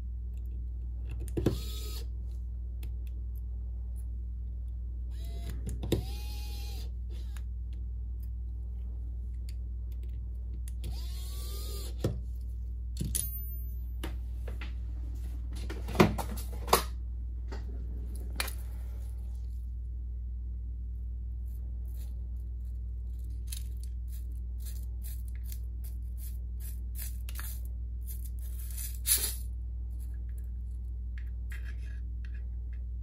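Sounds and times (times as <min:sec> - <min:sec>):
steady low hum: 0:00.0 - 0:33.0
electric screwdriver motor: 0:05.2 - 0:07.4, 0:10.9 - 0:12.0.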